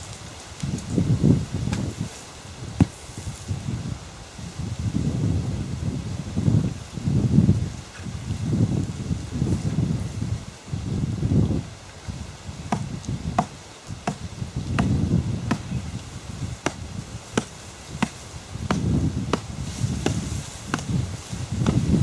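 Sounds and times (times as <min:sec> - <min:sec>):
wind rumbling on microphone: 0:00.0 - 0:22.0
blade chopping coconuts: 0:12.7 - 0:14.2, 0:14.8 - 0:15.7, 0:16.6 - 0:21.0.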